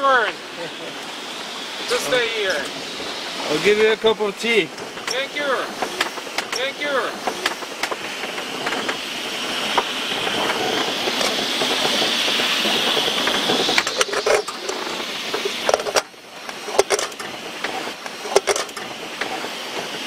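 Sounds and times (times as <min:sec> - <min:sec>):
gale wind: 0:00.0 - 0:20.0
rushing sea: 0:00.0 - 0:20.0
boat gear knocking and rattling: 0:13.0 - 0:19.4.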